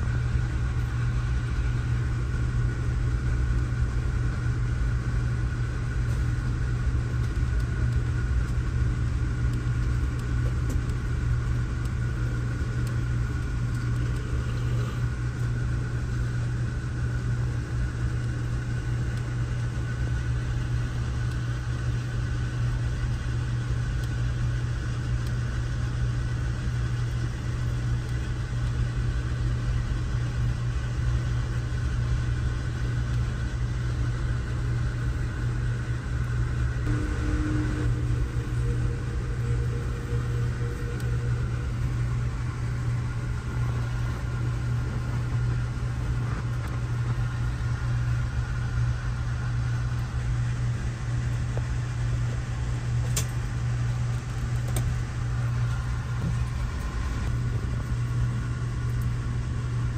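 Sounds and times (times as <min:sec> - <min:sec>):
car engine and road drone: 0:36.7 - 0:46.8
faint brief tone: 0:36.9 - 0:42.2.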